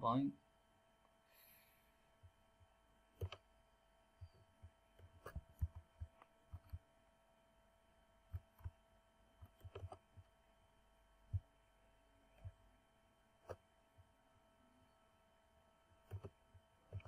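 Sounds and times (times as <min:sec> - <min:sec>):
faint steady hum: 0:00.0 - 0:17.0
computer mouse clicks: 0:03.2 - 0:03.5, 0:04.2 - 0:06.8, 0:08.3 - 0:08.8, 0:09.4 - 0:10.2, 0:16.0 - 0:17.0
soft low thumps: 0:11.3 - 0:11.6.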